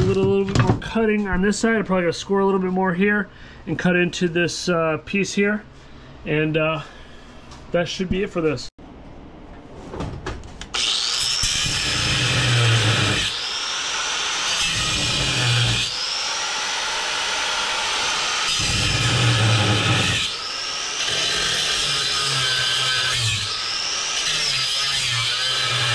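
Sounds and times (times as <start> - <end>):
power tool cutting metal: 10.7 - 25.9.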